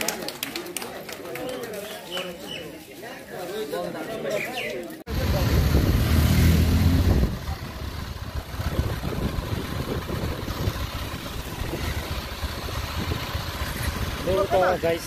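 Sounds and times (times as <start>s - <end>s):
motorcycle engine rumbling: 5.1s - 15.0s.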